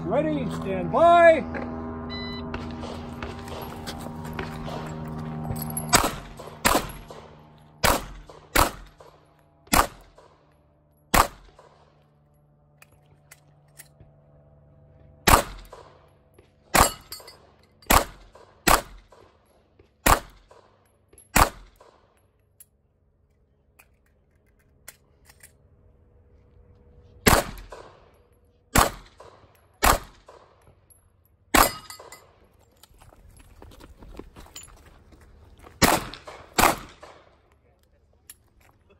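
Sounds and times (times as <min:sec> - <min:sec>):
pistol shots: 0:05.9 - 0:10.4, 0:11.1 - 0:11.8, 0:15.3 - 0:16.0, 0:16.7 - 0:17.1, 0:17.8 - 0:19.2, 0:20.0 - 0:22.0, 0:27.2 - 0:28.1, 0:28.7 - 0:30.6, 0:31.5 - 0:32.2, 0:35.8 - 0:37.3.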